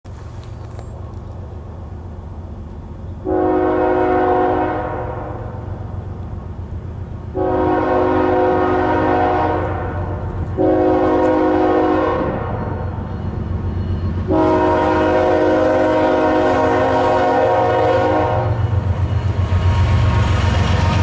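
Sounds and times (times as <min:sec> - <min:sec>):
train rumbling: 0:00.1 - 0:21.0
locomotive air horn blasts: 0:03.2 - 0:05.6, 0:07.4 - 0:13.0, 0:14.2 - 0:18.7.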